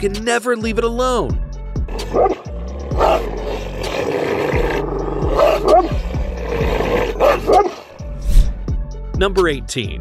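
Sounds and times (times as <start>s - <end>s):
dog barking deeply: 1.9s - 8.0s.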